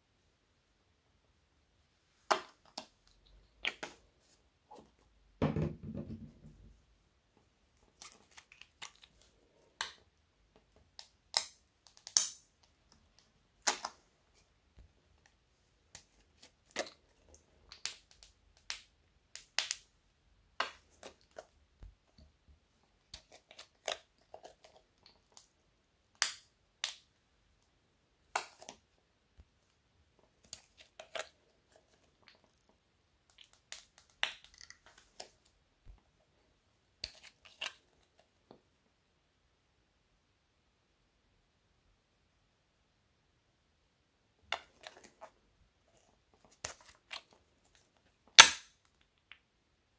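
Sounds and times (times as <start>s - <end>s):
squeeze tube pops and clicks: 48.4s - 49.0s.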